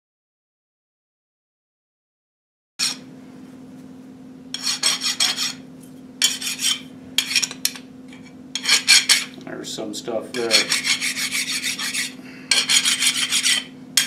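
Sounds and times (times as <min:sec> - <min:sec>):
steady low hum: 0:02.8 - 0:14.0
hand file rasping on steel: 0:04.6 - 0:05.6, 0:06.2 - 0:07.6, 0:08.6 - 0:09.3, 0:10.3 - 0:13.7.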